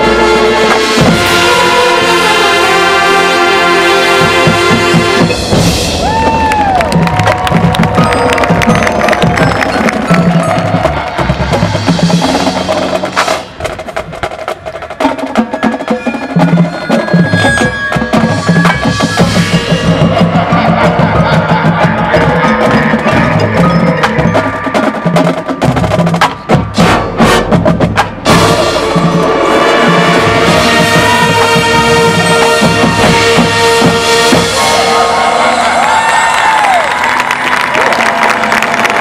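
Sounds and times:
marching band playing: 0.0 - 39.0
mallet percussion: 4.4 - 13.5, 15.0 - 35.0.

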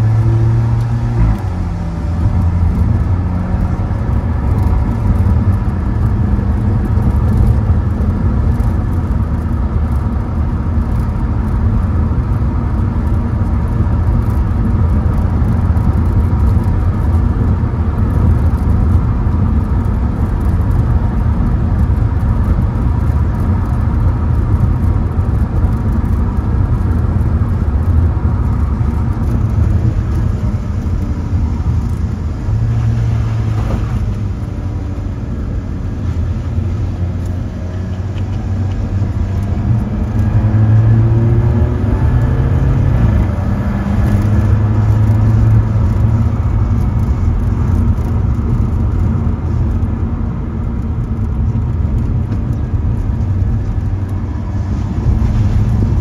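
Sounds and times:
car engine and tyre drone: 0.0 - 56.0.

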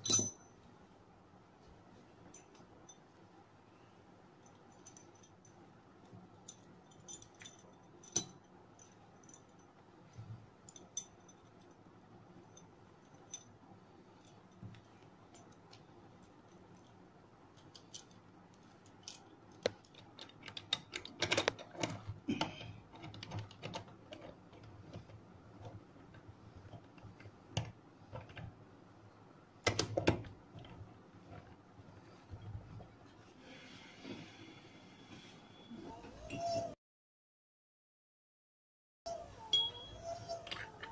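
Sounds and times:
small metal parts clinking: 0.0 - 0.5, 6.4 - 9.7.

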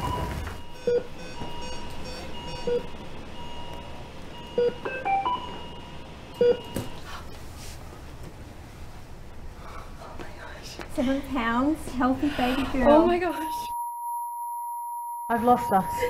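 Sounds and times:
patient monitor beeping: 0.0 - 7.4, 12.9 - 16.0.

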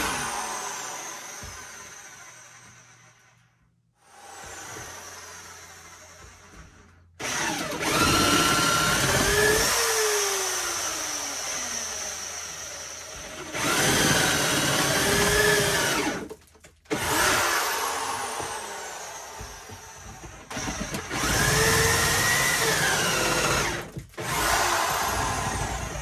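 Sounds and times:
power drill boring into wood: 0.0 - 26.0.

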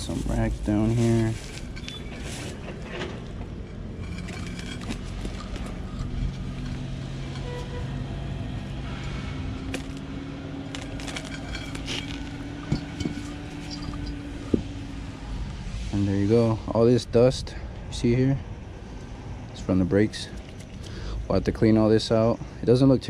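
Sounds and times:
low mechanical hum: 0.0 - 23.0
metallic clinks: 10.7 - 14.7.

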